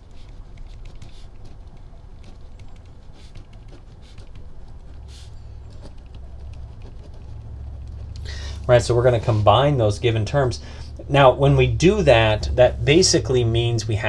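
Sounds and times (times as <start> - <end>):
pen scratching on paper: 0.0 - 9.4
low steady hum: 0.0 - 14.0.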